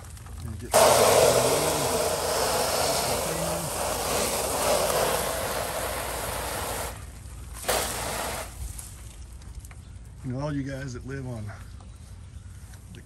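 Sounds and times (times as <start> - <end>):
spray hissing on siding: 0.7 - 8.8.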